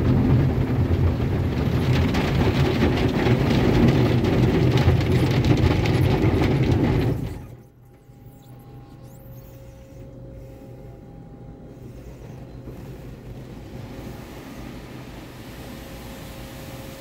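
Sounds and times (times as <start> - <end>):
car wash machinery humming: 0.0 - 17.0.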